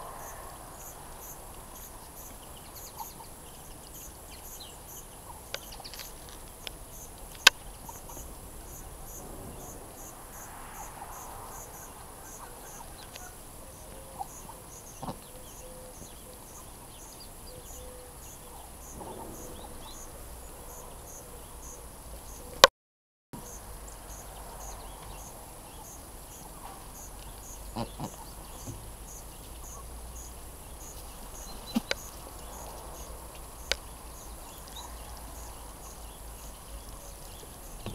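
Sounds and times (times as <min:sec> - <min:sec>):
duck bills pecking at fruit: 0:31.0 - 0:32.6.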